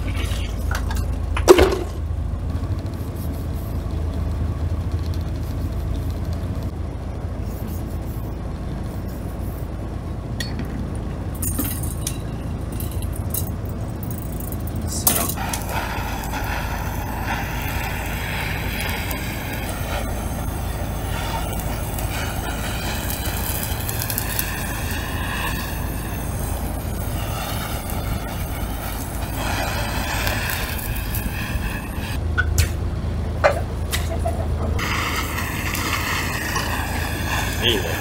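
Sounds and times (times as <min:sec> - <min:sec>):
idling boat engine: 0:13.4 - 0:32.3
blowtorch roaring: 0:14.2 - 0:32.2, 0:33.8 - 0:38.0.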